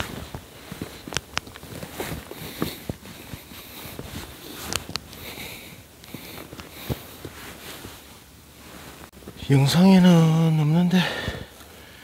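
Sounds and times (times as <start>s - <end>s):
clothing rustling: 0.0s - 9.4s.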